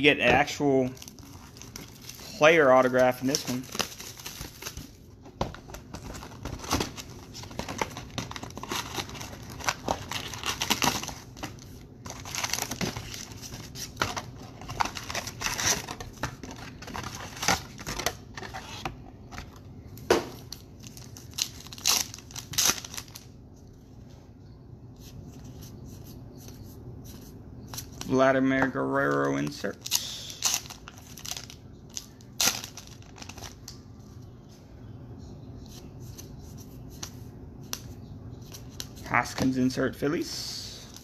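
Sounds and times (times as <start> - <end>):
wrappers crinkling and tearing: 0.8 - 5.0, 6.0 - 18.0, 20.5 - 23.3, 29.7 - 33.8.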